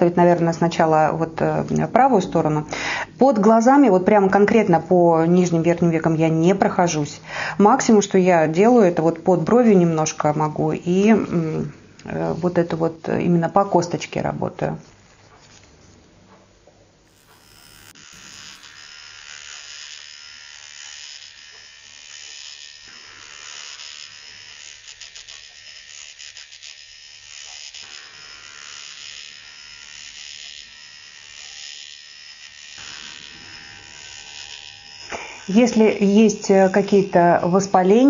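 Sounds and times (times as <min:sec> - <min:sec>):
microneedling pen buzzing: 0:17.1 - 0:38.0.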